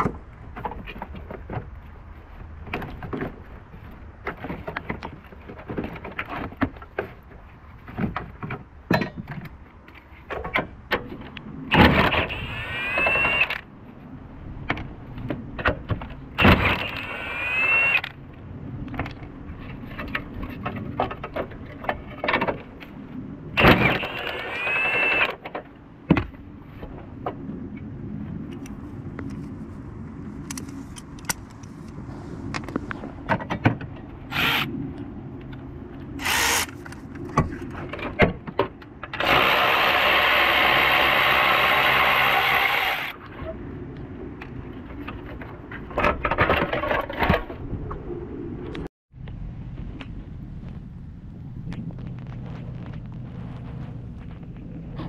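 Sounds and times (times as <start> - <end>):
power tool motor whine: 12.1 - 13.6, 16.5 - 18.0, 23.6 - 25.3, 36.2 - 36.7, 39.2 - 43.1.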